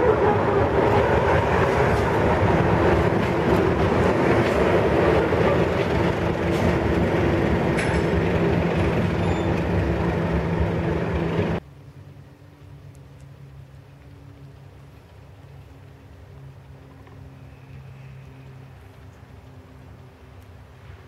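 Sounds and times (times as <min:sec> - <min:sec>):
diesel locomotive engine drone: 0:00.0 - 0:21.0.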